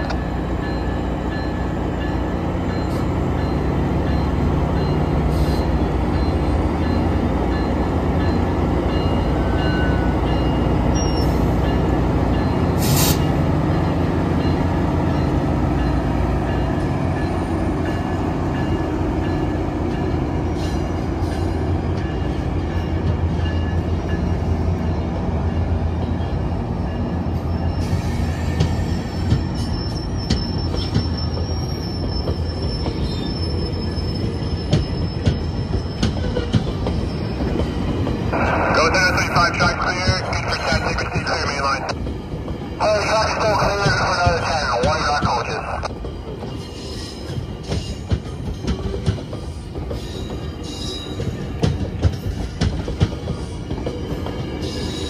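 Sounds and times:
train wheels squealing on rails: 0.0s - 24.4s, 26.0s - 39.4s, 42.8s - 55.0s
crossing warning bell ringing: 0.0s - 38.5s
diesel locomotive rumbling: 0.0s - 55.0s.

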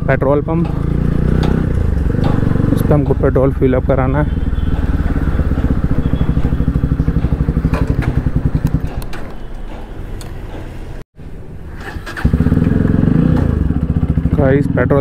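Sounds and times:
motorcycle engine idling: 0.1s - 9.1s, 12.1s - 15.0s.

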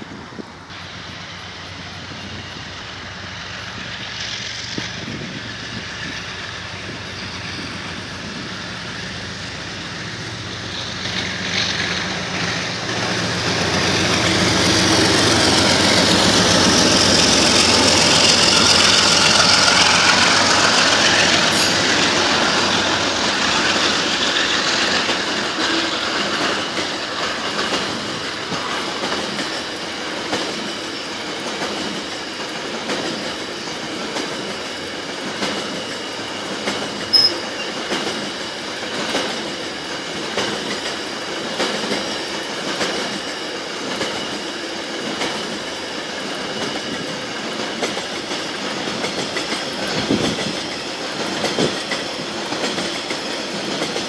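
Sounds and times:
freight train rolling and clattering: 0.0s - 54.0s
wheels squealing: 4.0s - 31.4s, 33.1s - 38.1s.

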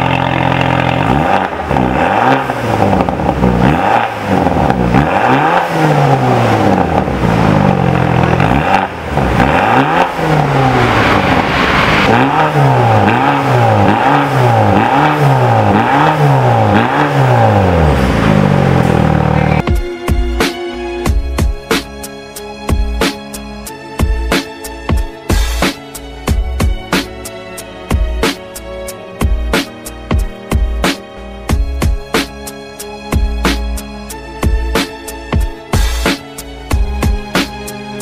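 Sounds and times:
car engine revving: 0.0s - 19.6s.

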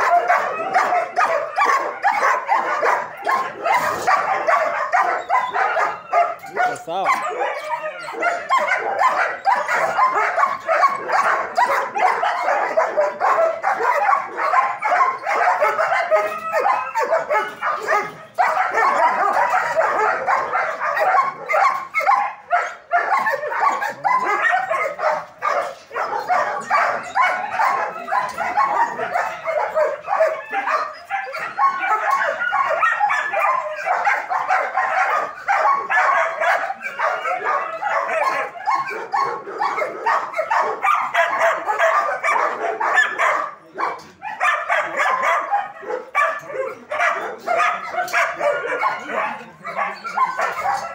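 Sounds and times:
dogs barking and yipping: 0.0s - 50.9s.

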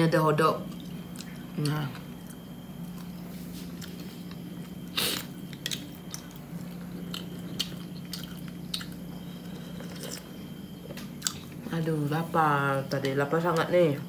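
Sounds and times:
steady low hum: 0.0s - 14.0s
person chewing: 0.7s - 11.6s.

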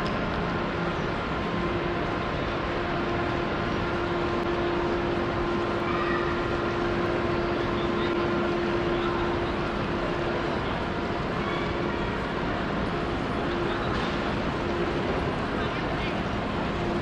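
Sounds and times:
station hall noise: 0.0s - 17.0s
steady hum: 0.0s - 17.0s.

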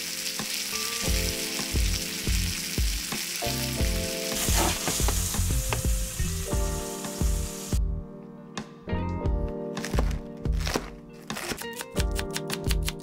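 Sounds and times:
steak sizzling in a frying pan: 0.0s - 7.8s
background music with a beat: 1.1s - 13.0s.

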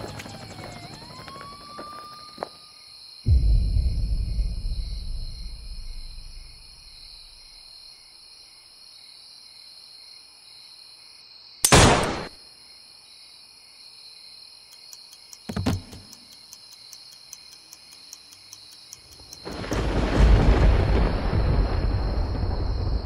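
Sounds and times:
crickets chirring: 0.0s - 11.7s, 12.4s - 23.0s
deep boom: 3.3s - 7.5s.

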